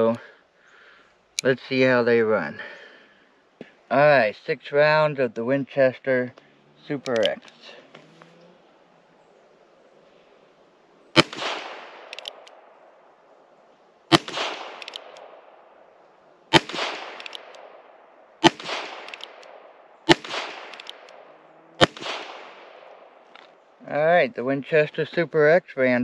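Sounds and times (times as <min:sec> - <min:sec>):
light revolver clicks: 0:07.0 - 0:07.6, 0:11.2 - 0:12.7, 0:14.1 - 0:15.5, 0:16.5 - 0:17.8, 0:18.4 - 0:23.0
revolver shots: 0:11.2 - 0:12.4, 0:14.1 - 0:15.5, 0:16.5 - 0:19.4, 0:20.1 - 0:23.0.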